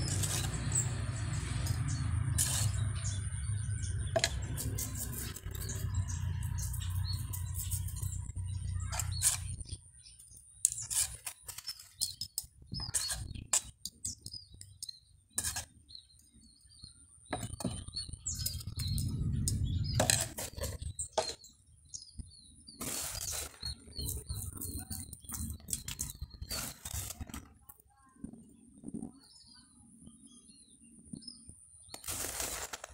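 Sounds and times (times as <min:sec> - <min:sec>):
grainy rustle of grit: 0:00.0 - 0:14.4, 0:15.3 - 0:16.1, 0:22.7 - 0:27.7, 0:31.9 - 0:32.9
birds chirping: 0:00.0 - 0:27.6
stones clicking and scraping: 0:08.9 - 0:15.7, 0:31.9 - 0:32.9.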